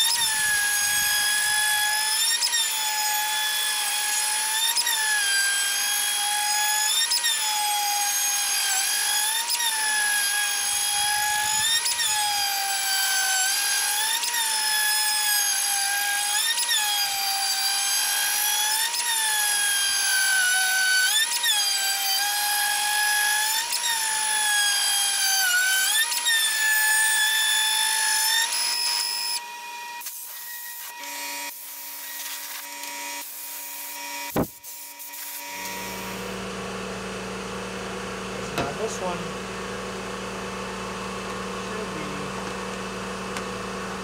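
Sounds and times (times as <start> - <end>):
router spindle high whine: 21.6 - 44.0
machine hum: 35.4 - 44.0.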